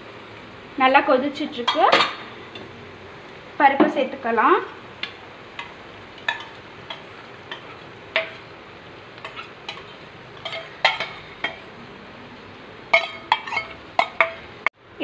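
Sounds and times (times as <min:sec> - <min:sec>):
spoon clinking on steel pans: 0:01.6 - 0:02.7, 0:05.6 - 0:08.5, 0:09.2 - 0:11.7, 0:12.9 - 0:14.6.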